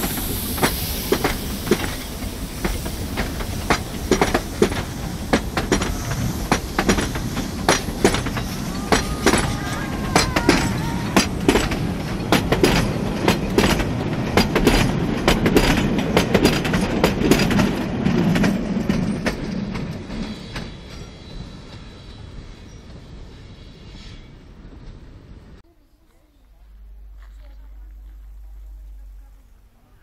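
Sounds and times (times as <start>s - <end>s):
train wheels clacking on rails: 0.0s - 23.8s
train rumble: 0.0s - 30.0s.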